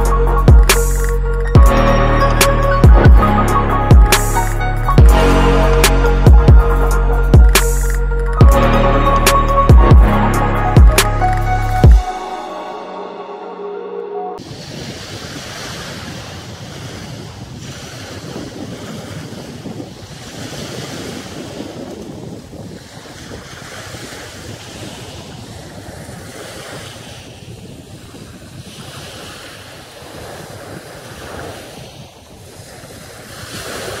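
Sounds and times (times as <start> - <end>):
sea waves washing on sand: 14.4 - 34.0
wind rumbling on microphone: 14.4 - 34.0.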